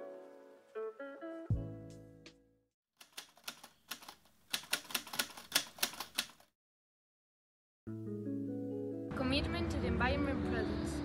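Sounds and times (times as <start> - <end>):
typewriter key clacks: 3.0 - 6.5.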